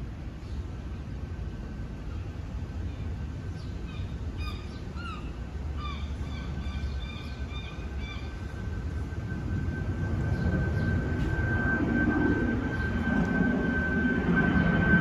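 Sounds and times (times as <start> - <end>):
jet airliner rumble overhead: 0.0 - 15.0
birds chirping: 2.9 - 8.7.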